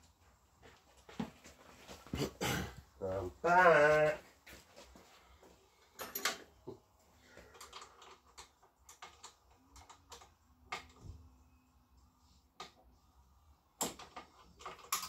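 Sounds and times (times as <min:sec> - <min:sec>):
metal tools clicking and tapping: 0:06.0 - 0:06.5, 0:13.8 - 0:15.0.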